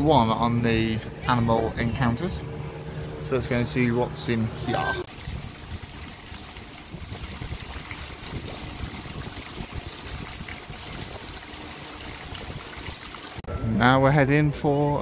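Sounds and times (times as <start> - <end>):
fountain water splashing: 5.1 - 13.4.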